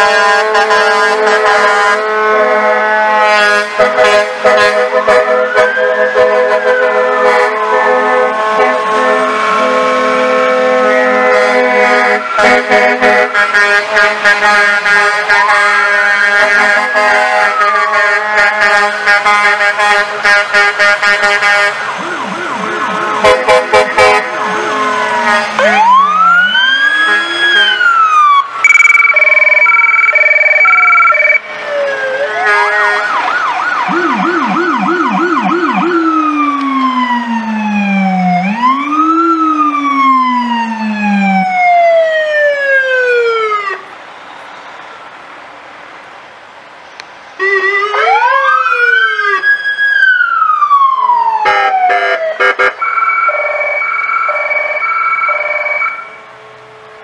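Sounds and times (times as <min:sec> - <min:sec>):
horn blast: 0:00.0 - 0:21.8, 0:22.6 - 0:26.0
police and fire sirens wailing: 0:00.0 - 0:45.3, 0:47.4 - 0:57.0.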